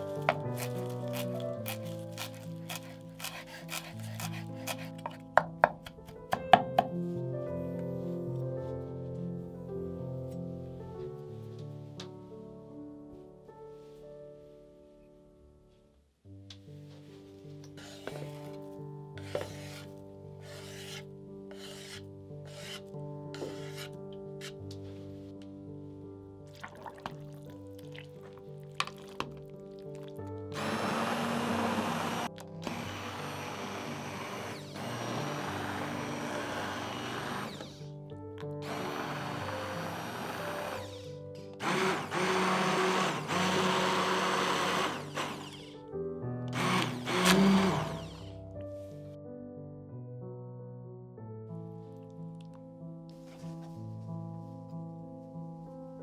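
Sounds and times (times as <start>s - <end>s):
soft background music: 0.0s - 56.0s
spatula scraping cutting board: 0.1s - 5.2s, 17.8s - 18.6s, 19.2s - 24.6s
hand blender motor: 0.5s - 4.9s, 30.5s - 37.8s, 38.6s - 45.8s, 46.5s - 48.4s.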